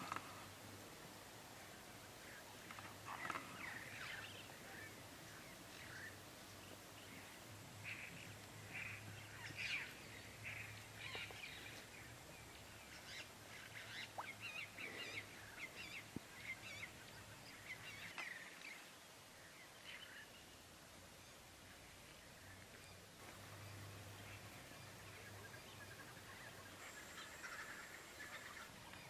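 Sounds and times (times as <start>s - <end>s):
faint low hum: 0.0s - 29.0s.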